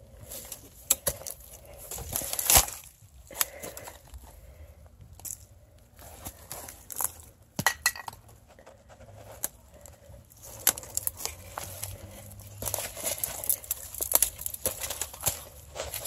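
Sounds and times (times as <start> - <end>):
twigs snapping underfoot: 0.3 - 4.2, 10.4 - 16.0
brush rustling: 8.8 - 16.0.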